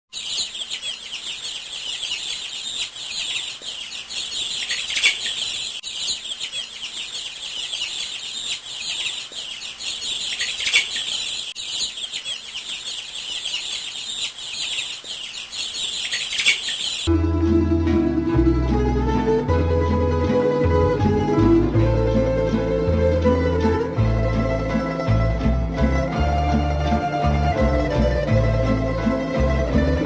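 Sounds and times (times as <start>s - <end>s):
small birds chirping: 0.1s - 17.1s.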